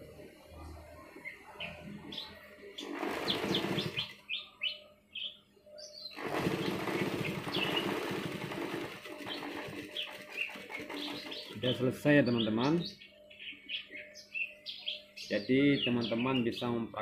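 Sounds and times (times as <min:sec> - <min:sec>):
small birds chirping: 0:00.8 - 0:16.8
sewing machine stitching: 0:02.8 - 0:04.1, 0:06.2 - 0:11.7.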